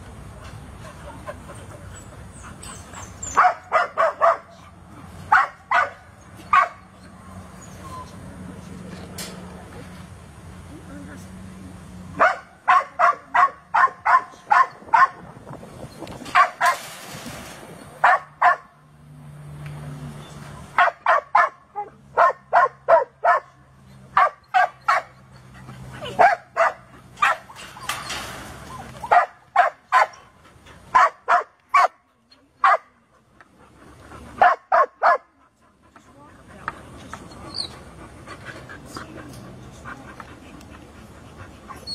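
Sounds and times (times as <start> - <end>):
dogs barking: 3.0 - 4.6, 5.3 - 6.9, 12.2 - 15.2, 16.3 - 16.8, 18.0 - 18.7, 20.8 - 25.4, 26.0 - 28.2, 29.0 - 30.3, 30.9 - 32.0, 32.6 - 32.9, 34.3 - 35.3.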